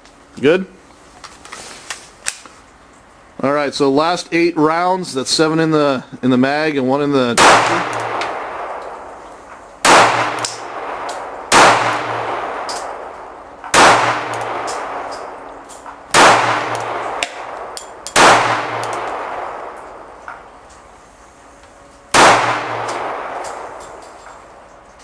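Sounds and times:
pistol shots echoing: 7.4s - 9.2s, 9.8s - 20.2s, 22.1s - 24.4s.

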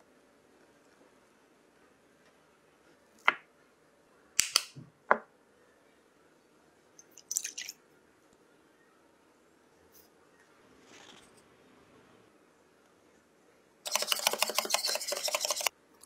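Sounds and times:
liquid splashing into bowl: 7.1s - 7.8s.

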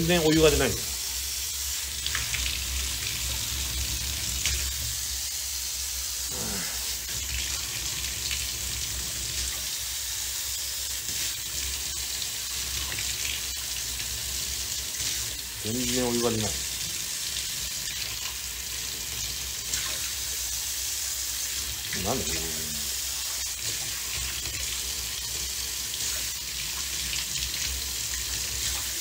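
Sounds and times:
water running from tap into tub: 0.0s - 29.0s.

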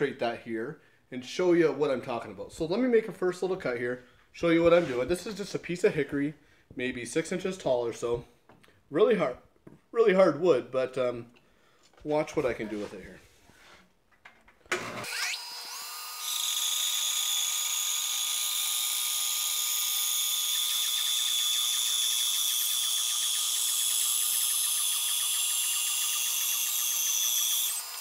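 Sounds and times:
bandsaw cutting wood: 14.7s - 28.0s.

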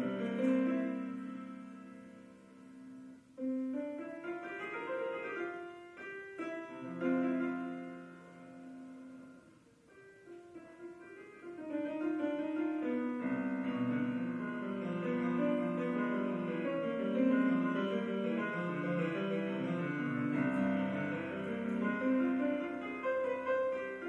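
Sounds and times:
slow quiet piano piece: 0.0s - 24.0s.

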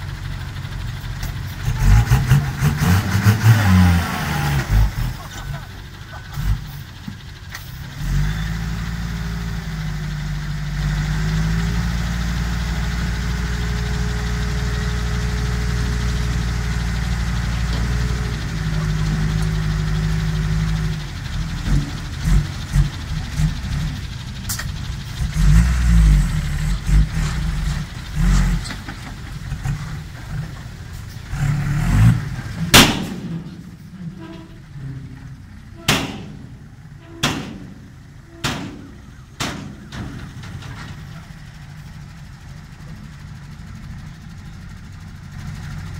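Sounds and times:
truck diesel engine revving: 0.0s - 45.9s
sharp knock: 35.9s - 36.4s.

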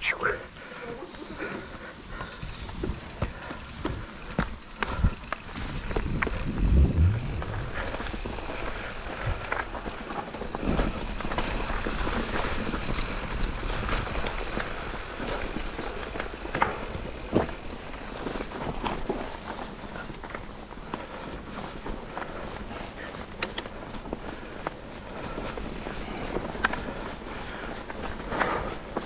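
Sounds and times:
bike tyres rolling over dirt and leaves: 0.5s - 29.0s
wind on microphone: 5.8s - 8.5s
heavy low thump: 6.5s - 8.3s.

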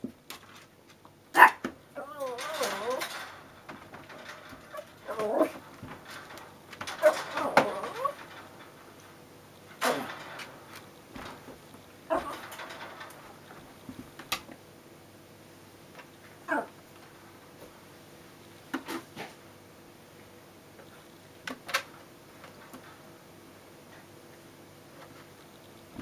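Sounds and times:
small dog whimpering: 2.0s - 3.0s, 7.0s - 8.2s.

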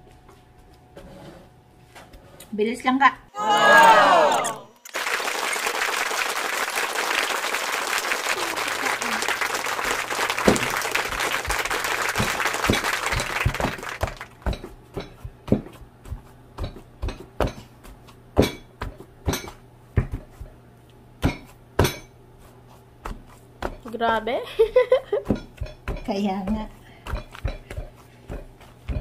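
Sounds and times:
wooden masher pounding potatoes: 10.4s - 20.6s, 21.2s - 24.3s, 25.1s - 29.0s.

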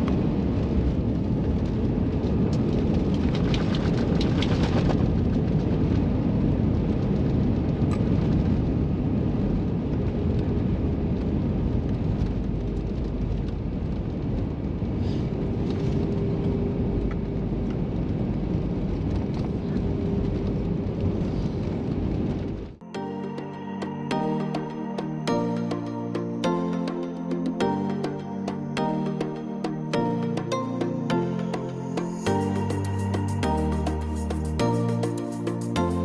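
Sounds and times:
low engine and wheel rumble: 0.0s - 22.8s.

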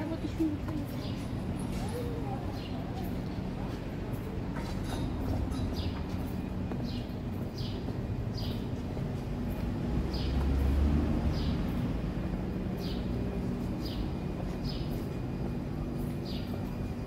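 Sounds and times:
vehicle traffic rumble: 0.0s - 17.0s.

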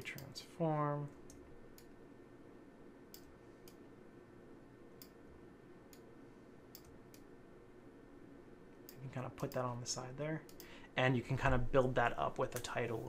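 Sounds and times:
faint computer mouse clicks: 6.7s - 7.3s, 10.5s - 10.7s.

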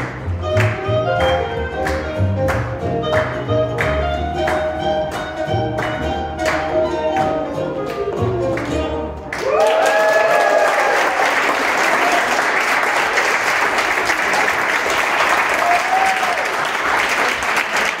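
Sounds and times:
audience applauding: 7.8s - 18.0s
voices cheering: 9.4s - 12.6s, 15.5s - 16.7s.

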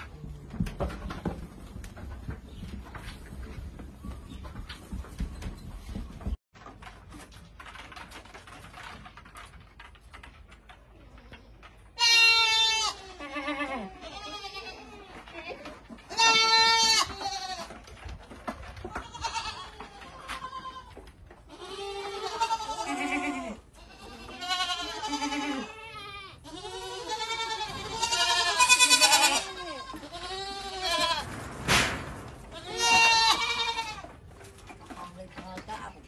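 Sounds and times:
goats bleating: 12.0s - 17.7s, 21.5s - 31.2s, 32.5s - 34.1s.

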